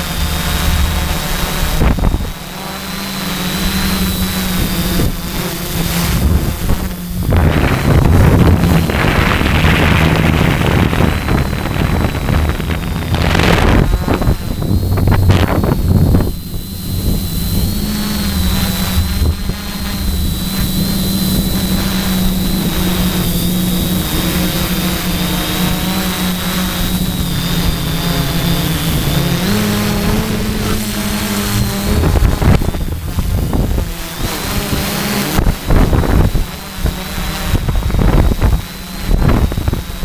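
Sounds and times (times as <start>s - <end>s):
drone motors and propellers humming: 0.0s - 40.0s
high motor whine: 0.0s - 40.0s
wind rumble on microphone: 0.0s - 40.0s.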